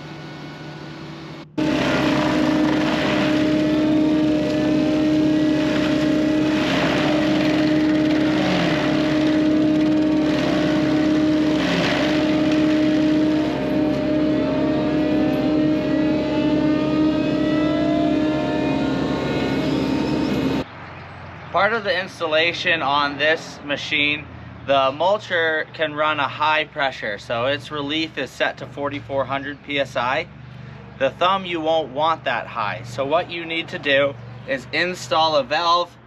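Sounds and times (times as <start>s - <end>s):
forestry mulcher grinding: 1.6s - 20.6s.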